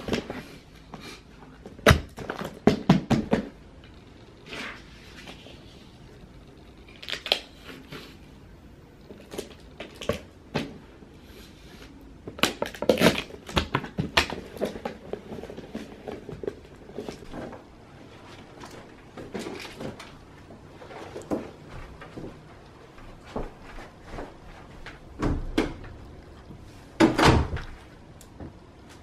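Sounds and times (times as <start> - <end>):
packing cardboard boxes with tape: 9.1 - 20.2.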